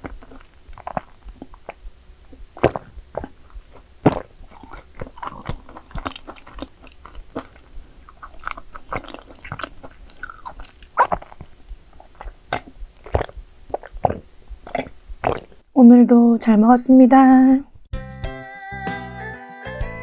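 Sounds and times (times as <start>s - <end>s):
person chewing crunchy cookies: 0.0s - 15.6s.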